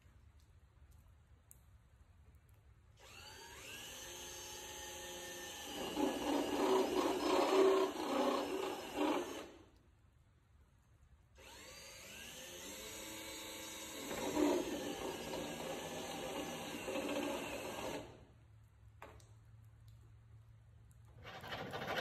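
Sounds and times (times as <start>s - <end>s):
cordless drill cutting metal: 3.0s - 9.6s, 11.4s - 18.2s.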